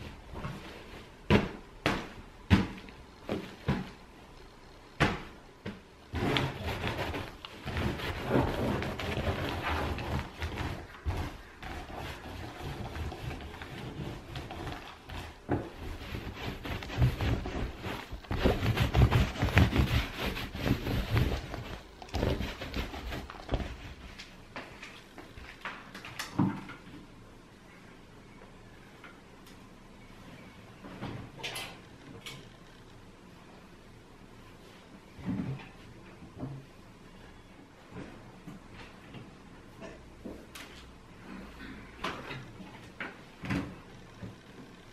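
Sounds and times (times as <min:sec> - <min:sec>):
fabric rustling: 0:06.1 - 0:25.0.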